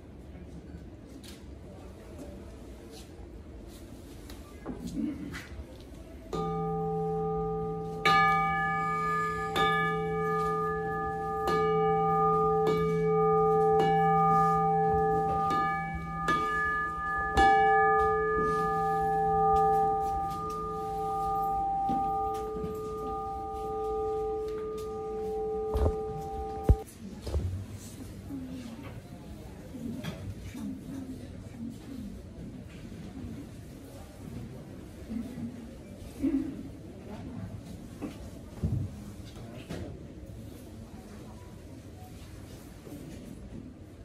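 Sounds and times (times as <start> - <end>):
singing bowl struck and ringing: 6.4 - 26.8.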